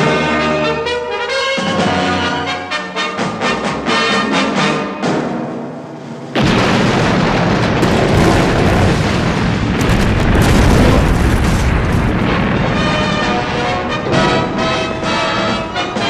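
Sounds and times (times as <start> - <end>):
explosion blast: 6.3 - 15.2
deep rumble: 6.4 - 15.1.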